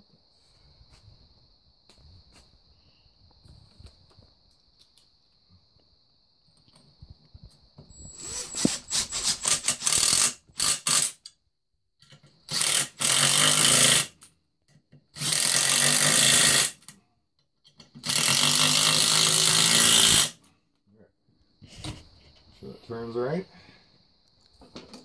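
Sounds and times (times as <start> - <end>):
cordless drill driving screws: 8.0 - 11.2, 12.5 - 14.2, 15.2 - 16.8, 18.0 - 20.4.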